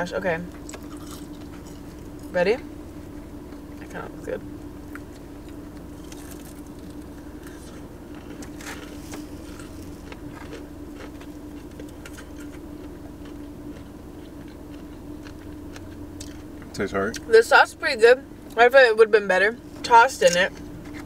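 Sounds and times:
steady low hum: 0.0 - 21.0
chewing crunchy food: 0.5 - 2.3, 4.9 - 17.2.

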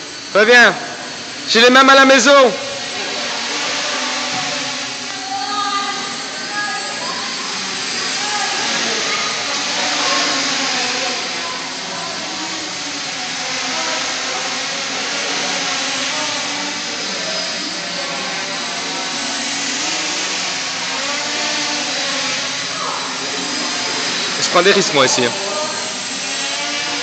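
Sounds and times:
drone propellers whirring: 0.0 - 27.0.

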